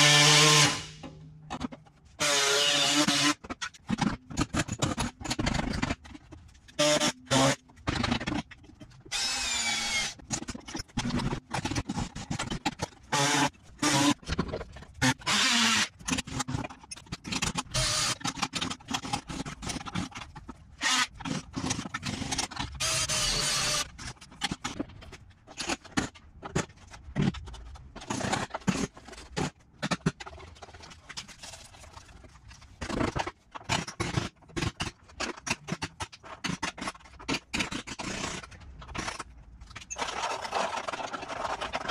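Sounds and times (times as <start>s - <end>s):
power tool cutting sheet metal: 0.0s - 1.0s, 2.2s - 3.4s, 6.8s - 7.6s, 15.0s - 15.9s, 17.7s - 18.2s, 22.8s - 23.9s.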